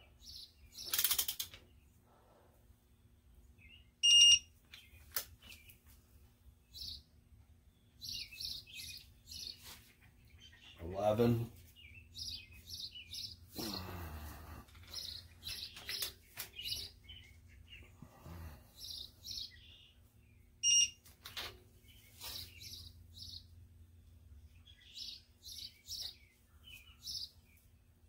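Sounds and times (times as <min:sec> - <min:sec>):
small birds chirping: 0:00.0 - 0:28.0
short electronic beep: 0:04.0 - 0:04.5, 0:20.6 - 0:21.0.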